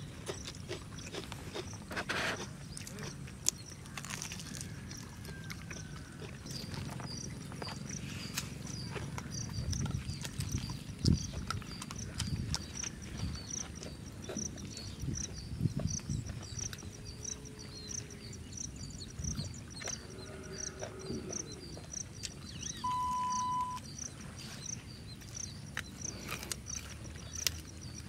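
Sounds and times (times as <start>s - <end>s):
high chirping: 22.6s - 24.1s
steady high beep: 22.8s - 23.8s.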